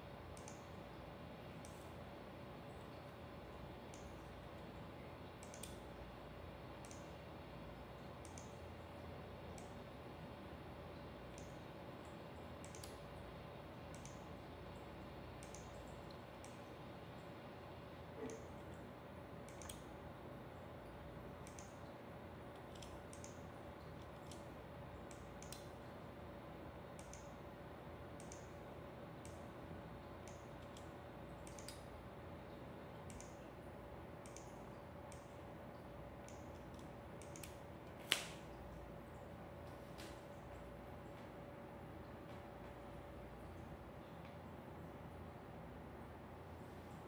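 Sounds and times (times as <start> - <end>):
faint electrical hum: 0.0 - 47.0
keyboard and mouse clicks: 0.4 - 0.6, 5.4 - 5.8, 8.2 - 8.6, 12.6 - 13.0, 13.9 - 14.2, 15.4 - 15.8, 19.5 - 19.8, 21.4 - 21.8, 22.6 - 23.4, 24.0 - 24.5, 25.1 - 25.7, 27.0 - 27.3, 28.2 - 28.5, 30.2 - 31.9, 33.1 - 33.4, 34.2 - 34.5, 36.2 - 38.4.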